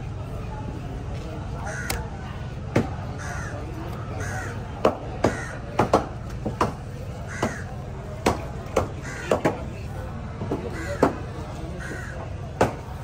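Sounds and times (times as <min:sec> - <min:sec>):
crows cawing: 0:01.6 - 0:02.0, 0:03.2 - 0:03.6, 0:04.2 - 0:04.6, 0:05.2 - 0:05.7, 0:07.2 - 0:07.8, 0:08.9 - 0:09.4, 0:10.7 - 0:12.4.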